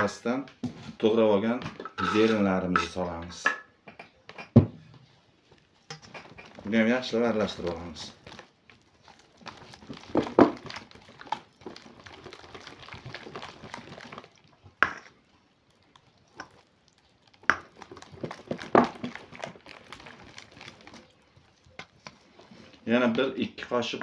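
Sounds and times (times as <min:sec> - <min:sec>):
batter stirred with spatula: 0:00.7 - 0:24.0.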